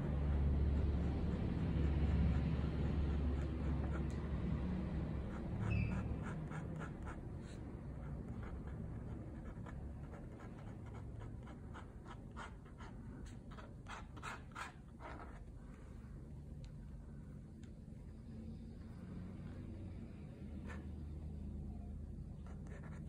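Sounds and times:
pen nib scratching on paper: 0.0 - 15.6, 22.4 - 23.0.

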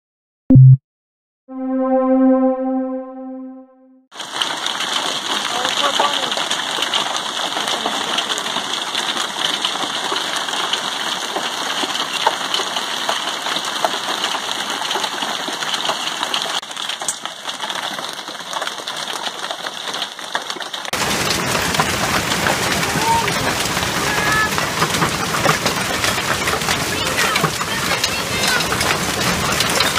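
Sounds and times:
hail pattering on deck: 4.2 - 29.9
rushing storm noise: 21.0 - 29.9.

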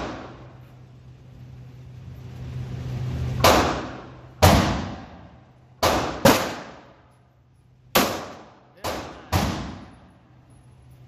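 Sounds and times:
steady low hum: 0.0 - 11.0
handgun shots echoing: 5.8 - 6.9, 8.0 - 10.0.

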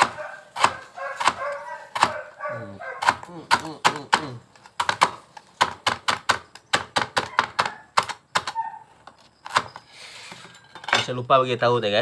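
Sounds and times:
knife chopping on cutting board: 0.0 - 2.3.

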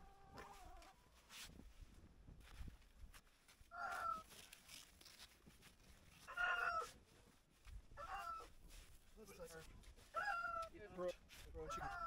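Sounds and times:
chickens calling: 10.2 - 10.7.

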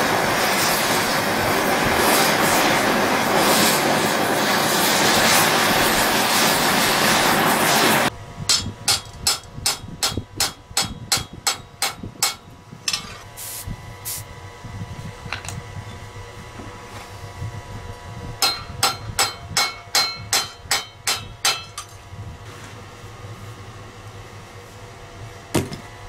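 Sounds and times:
torch hissing: 0.0 - 8.1, 13.4 - 14.3
steel frame ringing: 18.4 - 21.9.

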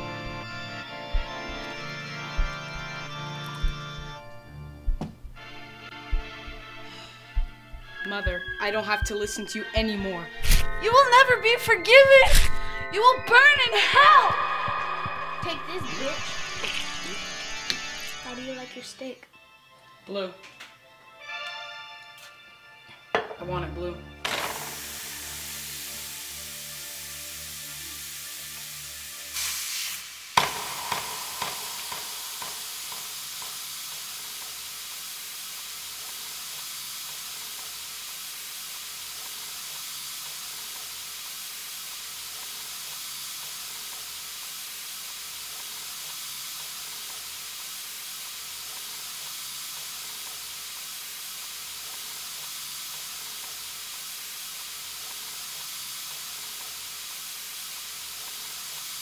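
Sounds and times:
steak sizzling in a pan: 24.3 - 59.0
sharp bang with echoes: 30.4 - 33.0.

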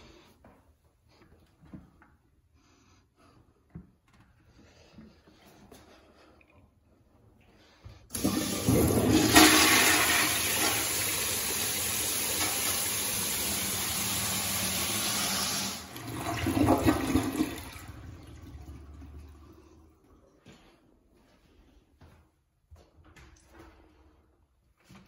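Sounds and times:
toilet flushing: 8.1 - 20.2.

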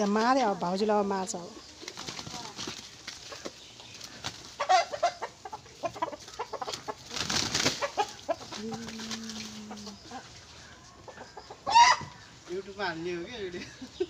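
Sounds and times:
roosters clucking: 0.0 - 14.0
wings flapping: 1.8 - 4.7, 6.6 - 10.0.

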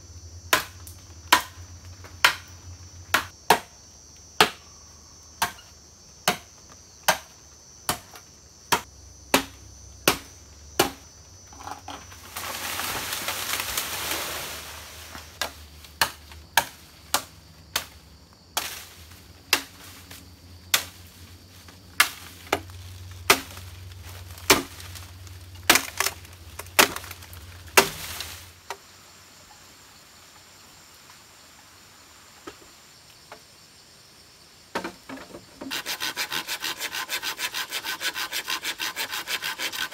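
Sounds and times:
insects buzzing: 0.0 - 39.9
machete chopping bamboo: 0.5 - 1.6, 2.2 - 2.5, 3.1 - 3.8, 4.4 - 4.6, 5.4 - 11.7, 15.4 - 18.0, 18.6 - 18.9, 19.5 - 19.9, 20.7 - 21.0, 22.0 - 23.7, 24.4 - 25.0, 25.6 - 28.4
rustling leaves: 11.2 - 33.2.

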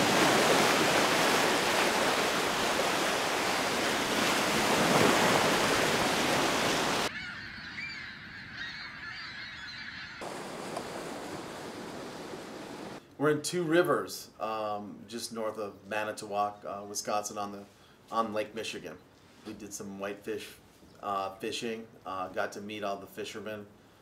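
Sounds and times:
surf breaking on a beach: 0.0 - 7.1, 10.2 - 13.0
gulls calling: 0.0 - 13.0.

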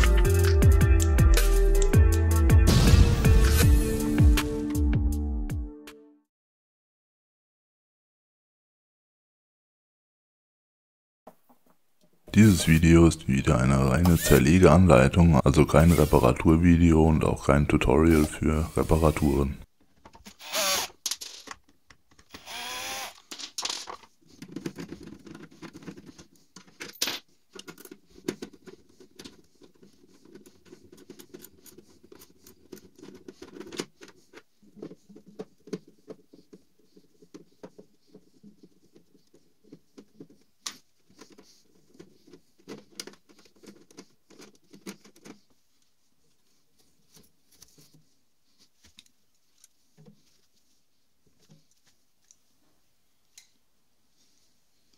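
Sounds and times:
cordless drill running: 20.4 - 21.0, 22.3 - 23.2
clicks and rattling of parts: 21.0 - 22.4, 23.2 - 36.3.

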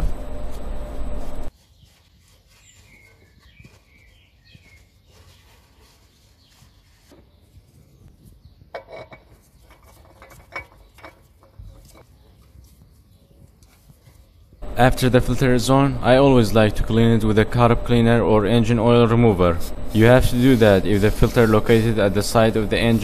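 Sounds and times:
oil filter clicking and scraping: 8.7 - 12.1.

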